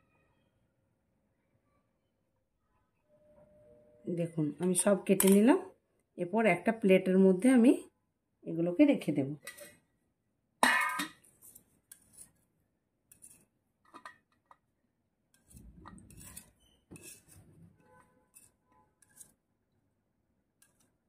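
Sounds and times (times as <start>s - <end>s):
knife tapping and scraping: 10.6s - 12.4s, 13.1s - 14.7s, 15.3s - 19.4s, 20.6s - 21.0s.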